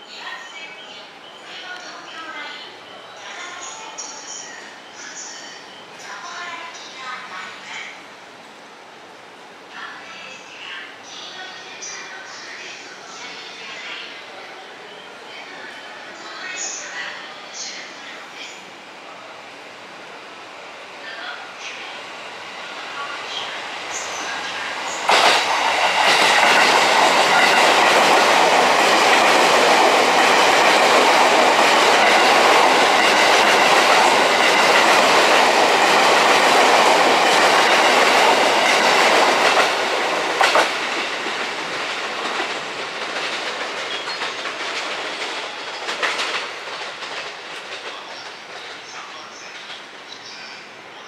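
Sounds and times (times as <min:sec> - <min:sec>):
train wheels clattering over joints: 0:25.0 - 0:48.0.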